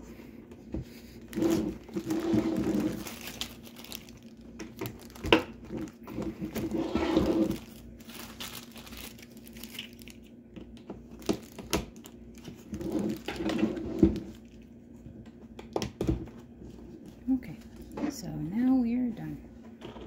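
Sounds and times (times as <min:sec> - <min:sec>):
plastic bag crinkling: 0:01.2 - 0:10.4, 0:11.0 - 0:14.7.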